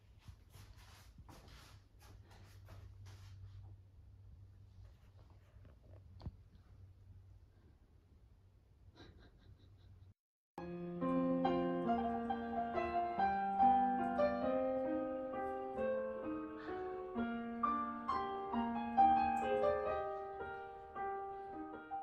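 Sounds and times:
slow piano melody: 10.6 - 22.0.

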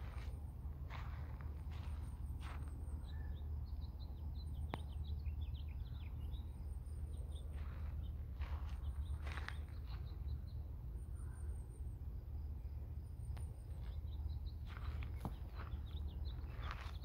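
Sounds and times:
footsteps on gravel: 0.0 - 2.9, 7.4 - 10.2, 13.8 - 17.0
small birds chirping: 0.0 - 17.0
steady low rumble: 0.0 - 17.0.

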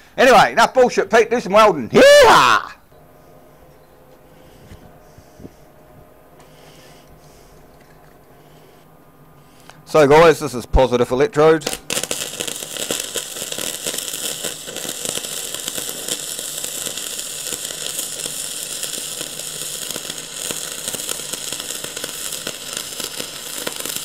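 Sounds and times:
welding arc crackling: 11.5 - 24.0.

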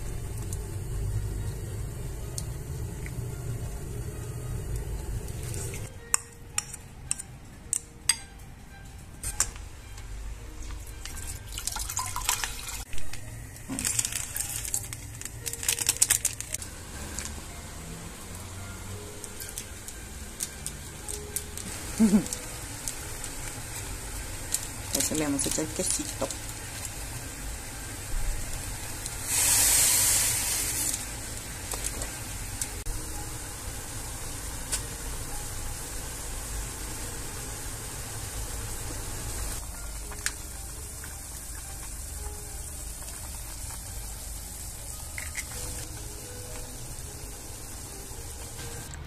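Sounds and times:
low hum: 0.0 - 6.0
water at rolling boil: 0.0 - 6.0, 10.6 - 49.0
dried flakes pattering into pot: 11.0 - 17.4, 19.1 - 27.4, 39.4 - 48.6
plastic sachet crinkling: 12.9 - 16.6
loud hiss of seasoning poured: 15.9 - 48.9.

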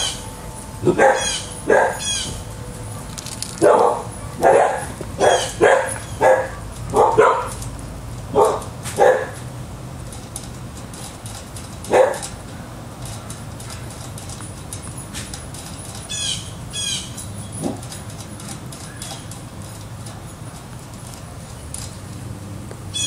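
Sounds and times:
dog barking: 0.9 - 2.0, 2.9 - 7.6, 8.3 - 9.4, 11.9 - 12.3.

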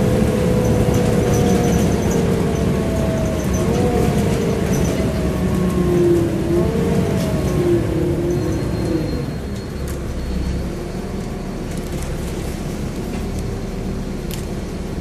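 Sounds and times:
bus diesel engine rumble: 0.0 - 15.0.

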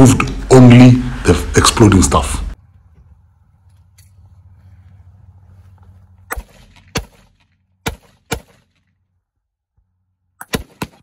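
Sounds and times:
gunshots firing blanks: 6.3 - 8.9, 10.4 - 11.0.

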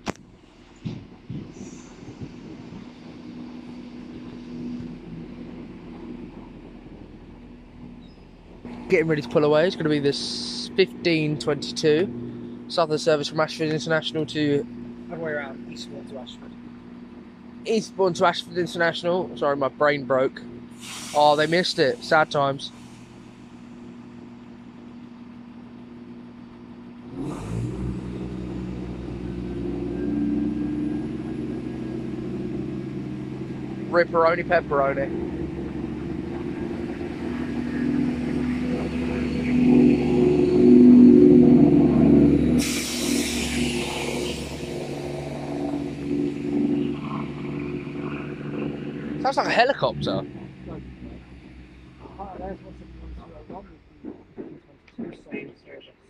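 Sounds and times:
diesel engines humming: 0.0 - 56.0
train rumble: 0.0 - 56.0
brief hiss: 20.8 - 21.7.

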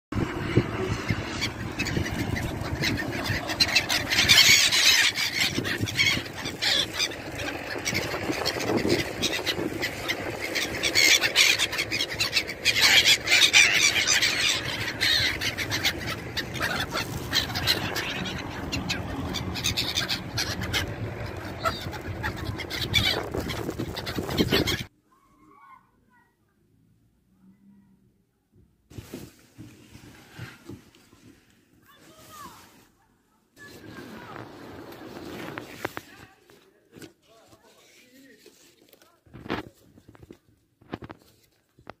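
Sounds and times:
gulls calling: 0.2 - 24.9.

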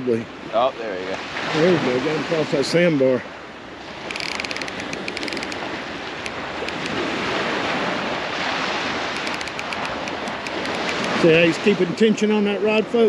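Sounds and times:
surf washing on beach: 0.0 - 13.0
wind on microphone: 3.8 - 12.0
fast faint ticking: 4.0 - 7.1, 9.1 - 11.3.

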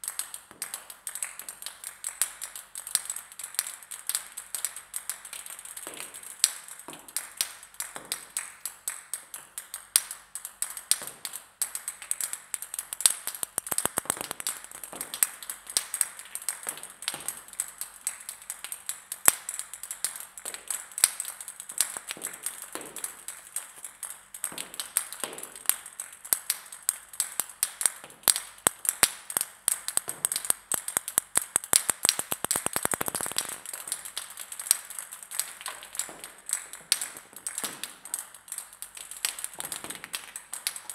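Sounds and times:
table tennis balls bouncing: 13.2 - 15.9, 28.0 - 34.1, 35.7 - 38.0.

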